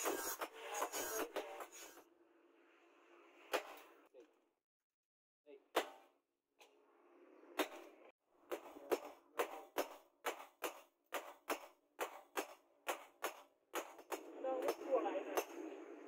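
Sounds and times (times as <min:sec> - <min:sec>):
hammer striking steel on anvil: 0:07.6 - 0:15.6.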